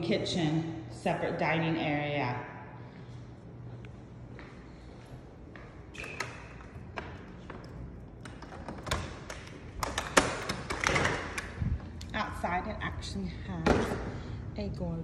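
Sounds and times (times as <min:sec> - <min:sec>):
door clicks and thuds: 0:07.0 - 0:11.6.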